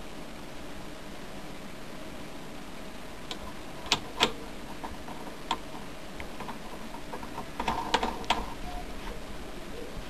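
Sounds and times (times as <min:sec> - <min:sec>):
metal flange knocking on spindle: 0:03.3 - 0:08.6.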